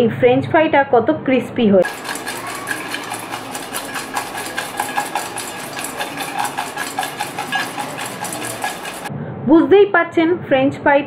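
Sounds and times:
fries rattling in metal bowl: 0:01.8 - 0:09.1.

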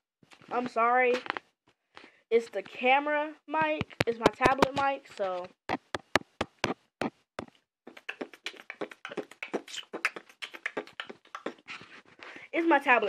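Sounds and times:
patter of soft taps and clicks: 0:03.6 - 0:06.3
sharp taps on tablet: 0:03.7 - 0:04.9, 0:05.7 - 0:07.5.

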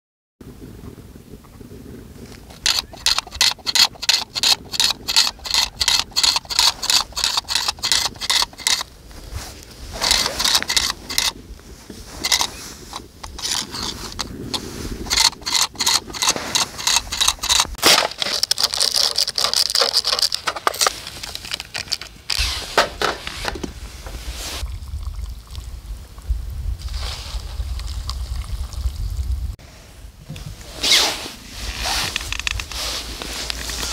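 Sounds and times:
hand tool scraping ice: 0:02.5 - 0:24.6, 0:30.7 - 0:33.9.

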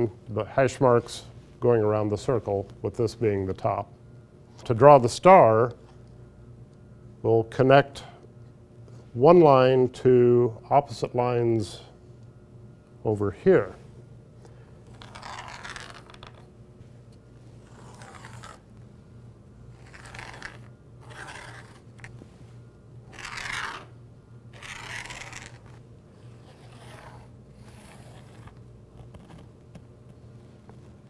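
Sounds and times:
low steady hum: 0:00.0 - 0:31.0
pencil scratching on plywood: 0:17.6 - 0:18.6, 0:19.8 - 0:22.1, 0:24.6 - 0:29.5.

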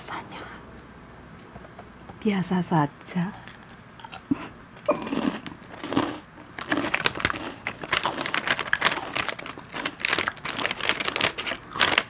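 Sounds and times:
plastic snack bag crinkling: 0:05.1 - 0:12.0.

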